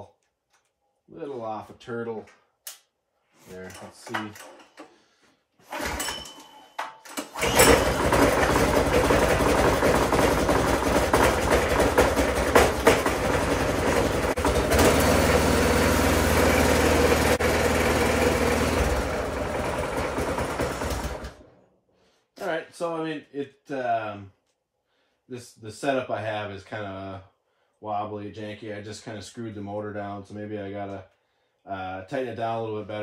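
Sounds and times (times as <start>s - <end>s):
small engine pull-started: 5.6s - 6.4s, 7.1s - 21.6s
small engine running: 7.4s - 21.5s.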